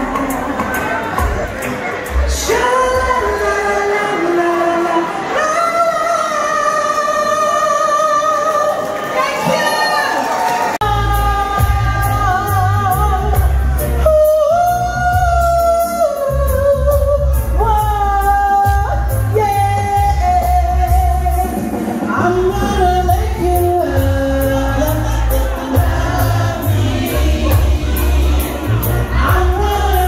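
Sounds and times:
heavy pulsing bass line: 22.3 - 30.0.

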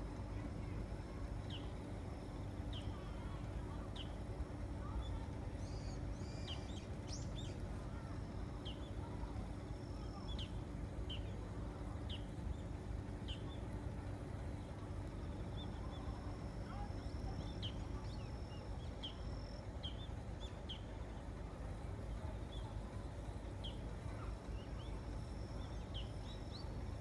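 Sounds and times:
bird chirping: 4.8 - 9.0.

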